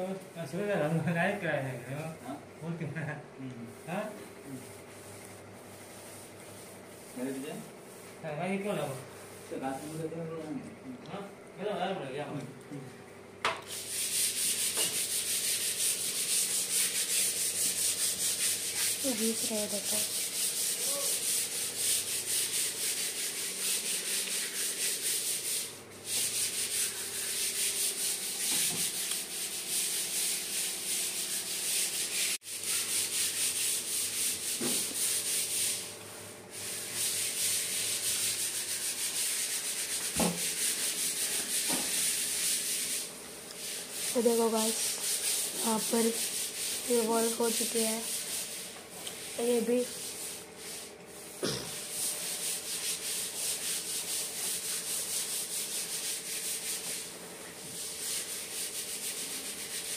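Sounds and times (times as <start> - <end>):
hand tool rubbing on plaster wall: 0.0 - 3.1, 3.8 - 10.4, 13.7 - 35.9, 36.5 - 59.9.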